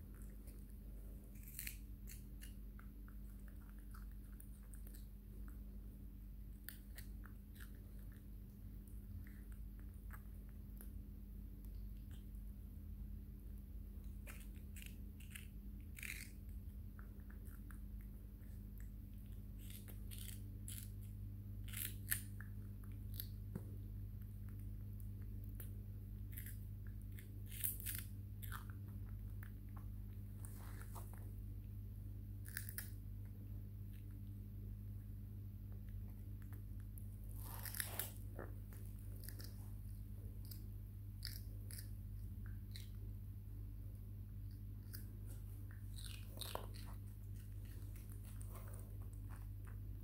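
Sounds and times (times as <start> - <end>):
wet crunching chewing: 0.0 - 5.8, 35.8 - 43.1, 44.4 - 50.0
steady low hum: 0.0 - 50.0.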